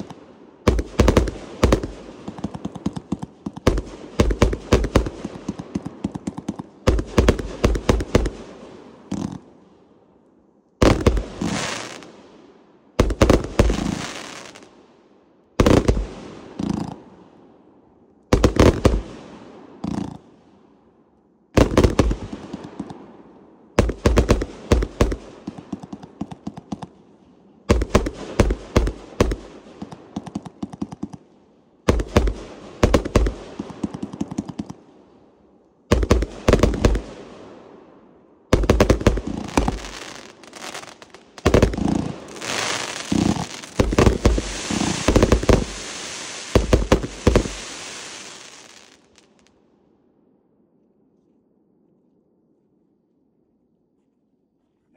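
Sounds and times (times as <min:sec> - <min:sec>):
firework bangs: 0:00.0 - 0:09.4, 0:10.8 - 0:12.1, 0:13.0 - 0:14.6, 0:18.3 - 0:19.2, 0:21.6 - 0:22.9, 0:23.8 - 0:26.9, 0:27.7 - 0:31.2, 0:31.8 - 0:34.8, 0:35.9 - 0:37.4, 0:38.5 - 0:49.5
dense steady hiss: 0:00.0 - 0:54.9.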